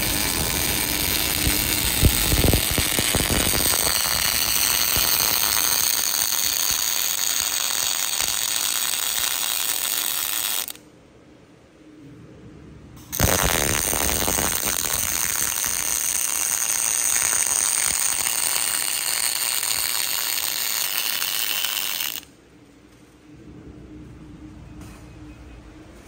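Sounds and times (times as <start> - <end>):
welding arc crackling and sizzling: 0.0 - 10.8, 13.1 - 22.3.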